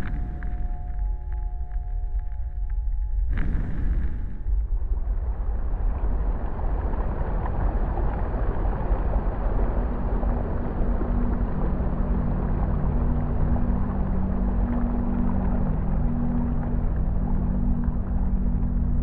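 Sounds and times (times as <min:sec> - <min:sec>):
low sustained drone chord: 0:00.0 - 0:04.6, 0:11.0 - 0:19.0
rumbling wash of noise: 0:00.0 - 0:19.0.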